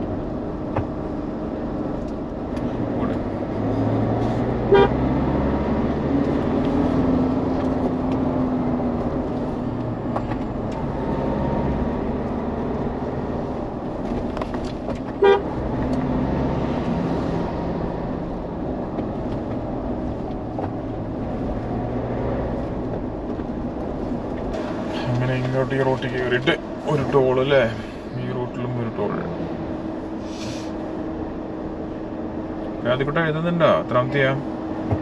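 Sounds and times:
car engine and road noise: 0:00.0 - 0:35.0
vehicle horn toots: 0:04.6 - 0:05.1, 0:15.2 - 0:15.6.

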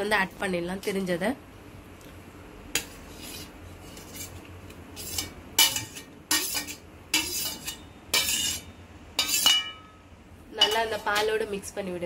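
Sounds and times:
metal spoon clinking on steel plate: 0:05.0 - 0:10.0, 0:10.6 - 0:11.4.

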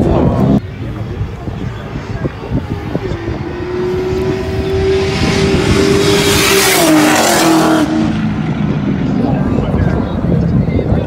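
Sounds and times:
race car driving past: 0:02.6 - 0:10.0.

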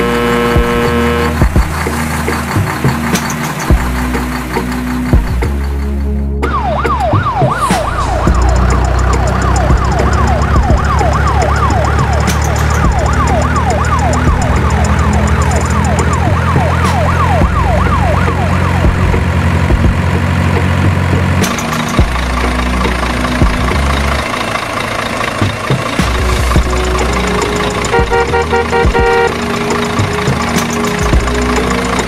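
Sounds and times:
low engine drone: 0:00.0 - 0:32.0
rough engine sound: 0:00.0 - 0:32.0
electronic siren wailing: 0:06.4 - 0:19.6.

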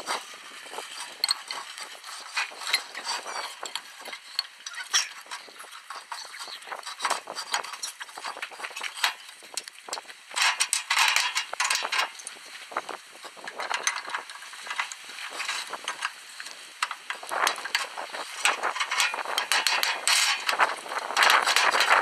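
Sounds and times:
metal clinks knocks and scrapes: 0:00.1 - 0:09.6, 0:10.4 - 0:12.4, 0:16.8 - 0:22.0.

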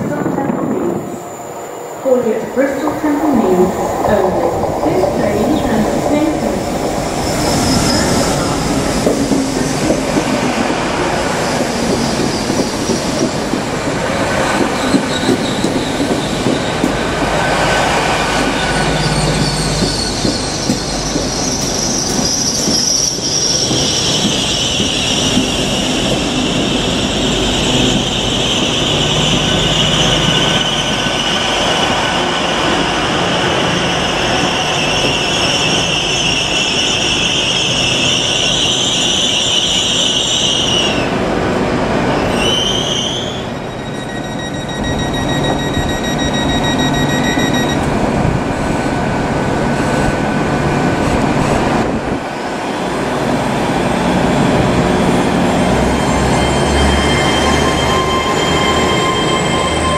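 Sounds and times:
train wheels rumbling on rail: 0:00.0 - 0:59.9
high-pitched brake squeal: 0:18.5 - 0:31.7, 0:42.2 - 0:47.8, 0:55.7 - 0:59.9.

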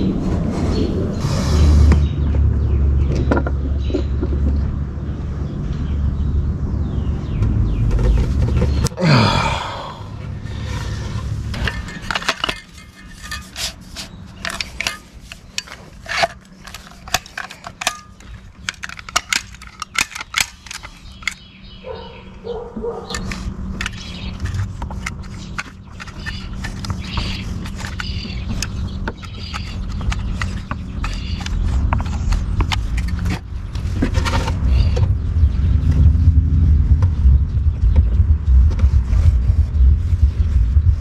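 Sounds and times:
low background rumble: 0:00.0 - 0:41.0
caulking gun clicks and clacks: 0:15.6 - 0:21.4.

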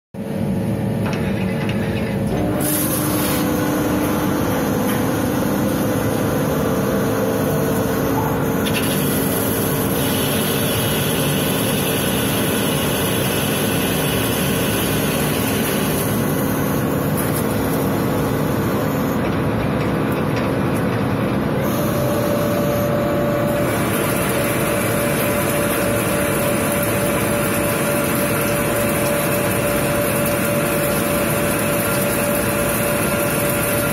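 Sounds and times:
lathe machine hum: 0:01.2 - 0:33.9
coolant spraying hiss: 0:08.7 - 0:16.0.

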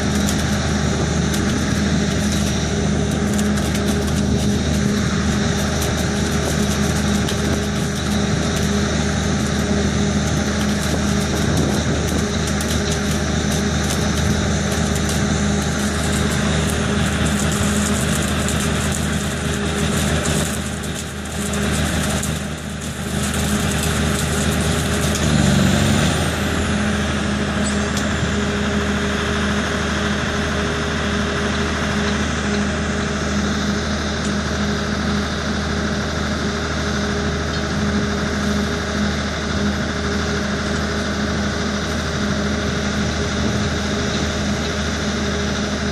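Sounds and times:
welding head crackling hiss: 0:00.0 - 0:28.1
diesel engine droning: 0:00.0 - 0:45.9.

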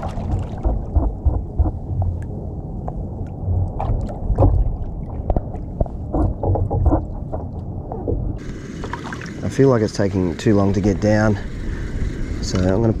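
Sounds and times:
water splashing against hull: 0:00.0 - 0:10.0.

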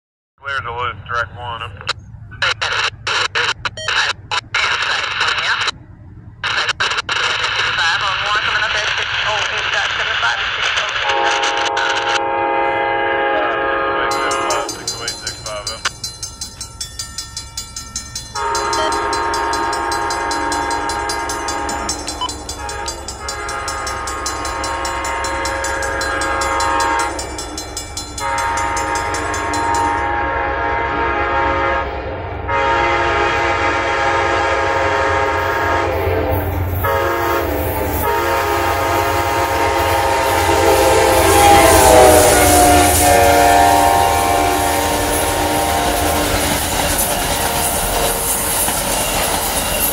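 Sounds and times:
train horn long blasts: 0:11.0 - 0:15.4, 0:18.4 - 0:27.4, 0:28.2 - 0:48.6.

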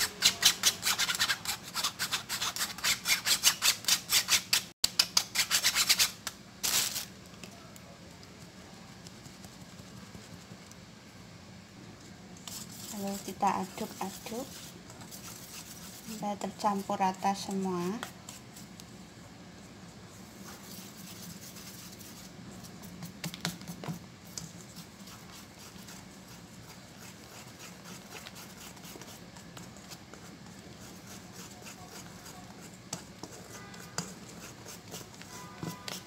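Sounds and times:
whisk scraping: 0:12.5 - 0:16.2, 0:20.4 - 0:36.0.

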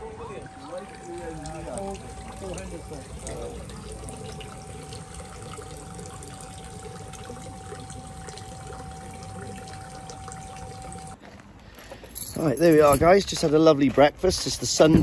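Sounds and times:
steady thin tone: 0:00.0 - 0:11.2
water trickling and splashing: 0:00.0 - 0:11.2.

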